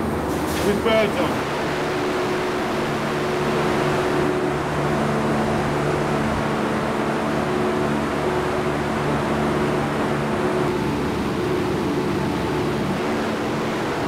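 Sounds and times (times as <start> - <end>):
low hum of held tones: 0.0 - 14.0
machinery droning: 0.0 - 14.0.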